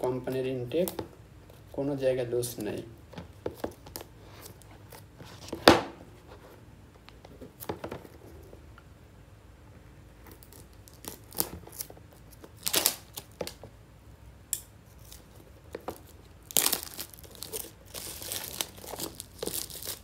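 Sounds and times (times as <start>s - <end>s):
plastic shrink-wrap crinkling: 10.3s - 13.6s, 14.9s - 20.0s.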